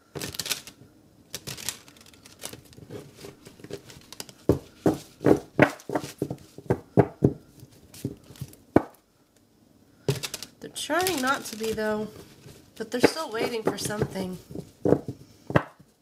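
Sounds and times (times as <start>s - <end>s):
cards rustling: 0.0s - 6.9s, 7.6s - 8.7s, 10.1s - 15.2s.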